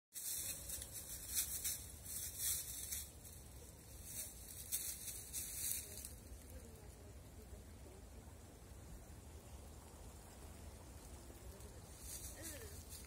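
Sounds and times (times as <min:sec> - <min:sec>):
footsteps crunching through dry leaves: 0:00.1 - 0:06.4, 0:11.8 - 0:13.0.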